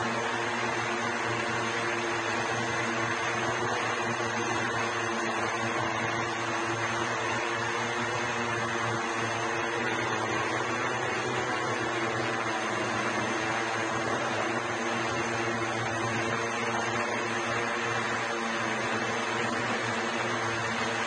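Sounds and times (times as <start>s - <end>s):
electric propellers droning: 9.2s - 21.0s.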